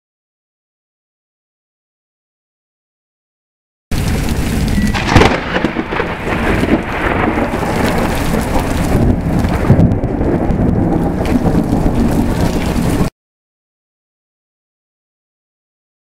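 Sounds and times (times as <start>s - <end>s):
sharp thunderclap: 3.9s - 13.1s
steady rain: 3.9s - 13.1s
thunder rumbling: 3.9s - 13.1s.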